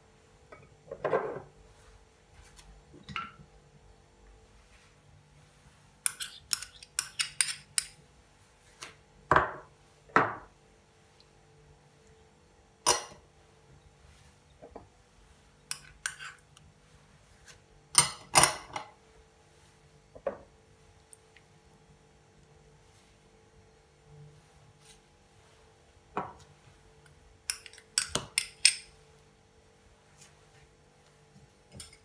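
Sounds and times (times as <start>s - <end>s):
glass bowls clinking and scraping: 6.1s - 8.0s, 15.6s - 16.4s, 27.5s - 29.0s, 31.7s - 32.0s.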